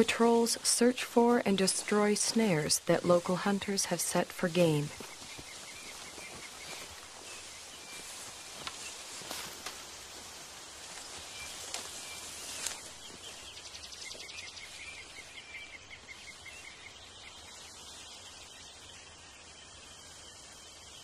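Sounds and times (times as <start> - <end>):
outdoor hiss: 0.0 - 21.0
brush snapping underfoot: 5.0 - 13.3.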